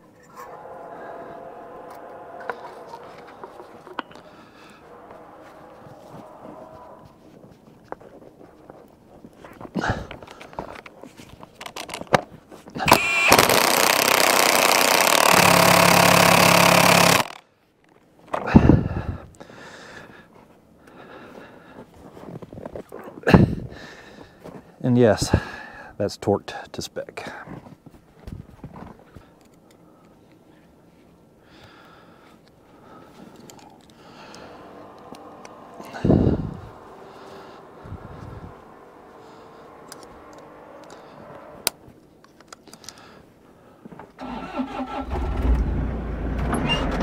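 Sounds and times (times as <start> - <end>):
soft breaths or rustles: 2.5 - 11.6, 18.6 - 26.0, 27.2 - 44.1
impact wrench hammering: 12.9 - 17.4.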